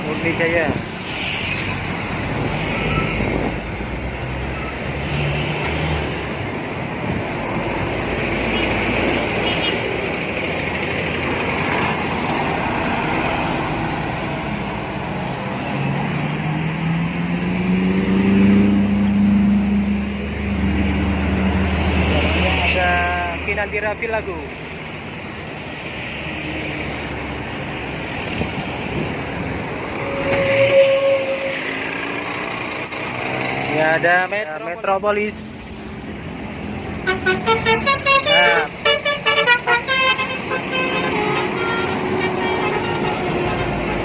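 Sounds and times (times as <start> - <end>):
heavy road traffic: 0.0 - 44.0
heavy vehicle engine accelerating: 1.7 - 23.4, 26.3 - 34.1.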